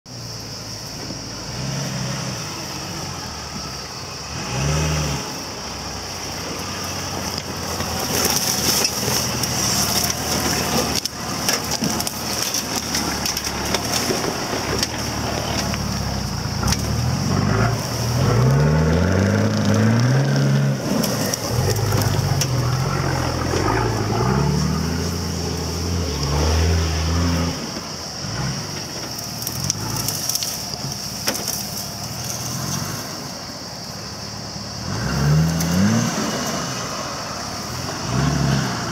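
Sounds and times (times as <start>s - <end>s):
diesel engine revving: 0.3s - 38.9s
tyres crunching brush: 7.0s - 28.0s, 28.6s - 33.0s.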